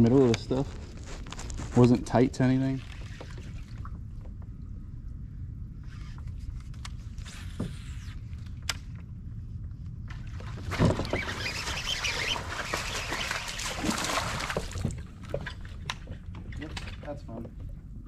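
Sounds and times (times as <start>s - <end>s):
fish splashing at surface: 10.8s - 15.0s.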